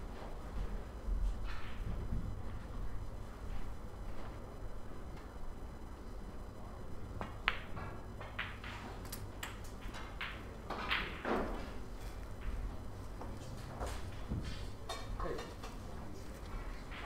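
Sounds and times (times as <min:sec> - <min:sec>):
snooker balls clicking: 0:07.2 - 0:11.8.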